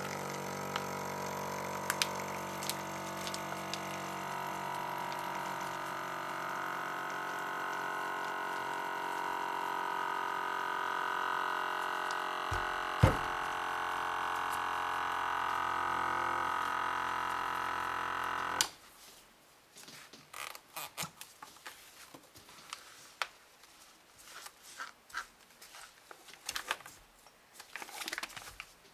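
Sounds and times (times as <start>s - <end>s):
vacuum sealer pump running: 0.0s - 18.8s
brief thump: 12.5s - 13.4s
plastic bag crinkling: 25.6s - 28.8s.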